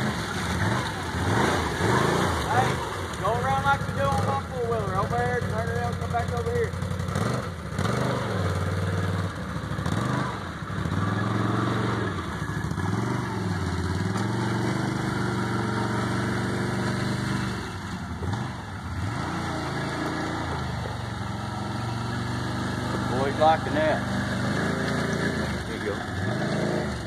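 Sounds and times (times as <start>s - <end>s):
atv engine revving: 0.0s - 27.0s.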